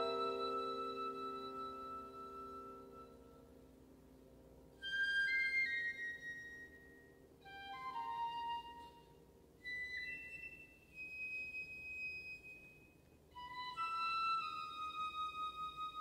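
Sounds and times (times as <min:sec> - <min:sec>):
high melody of held notes: 0:00.0 - 0:03.5
soft low accompaniment: 0:00.0 - 0:16.0.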